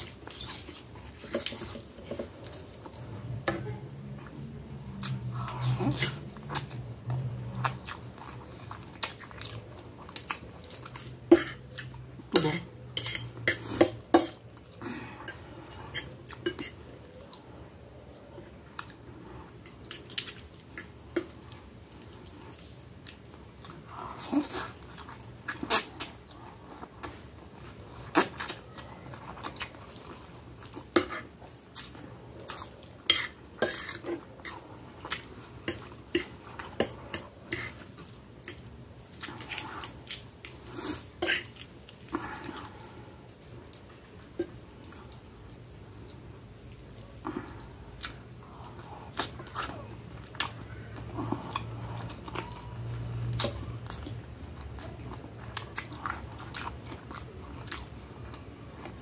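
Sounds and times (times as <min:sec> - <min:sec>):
fork and spoon scraping a plate: 0:12.4 - 0:14.4.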